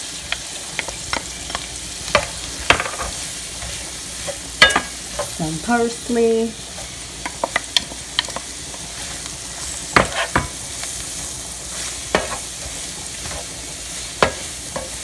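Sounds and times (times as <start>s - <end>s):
shrimp sizzling in frying pan: 0.0s - 15.0s.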